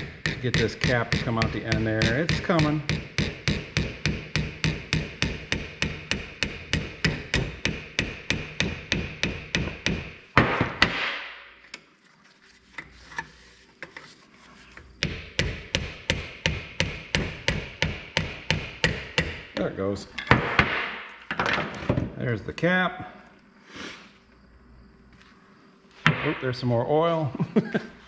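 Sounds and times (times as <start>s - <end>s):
hammer tapping on steel: 0.0s - 10.2s, 15.0s - 19.5s.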